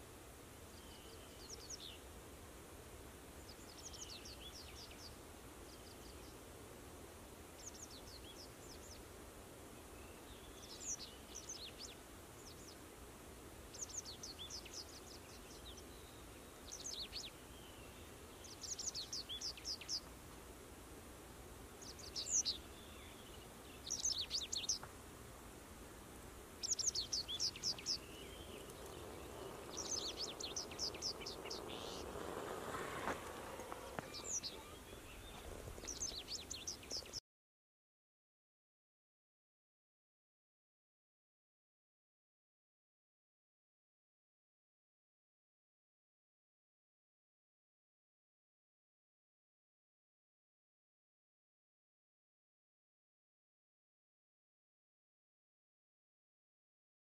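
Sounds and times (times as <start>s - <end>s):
songbird chirping: 0.5s - 2.2s, 2.8s - 20.6s, 21.6s - 37.2s
low rushing noise: 27.9s - 35.8s.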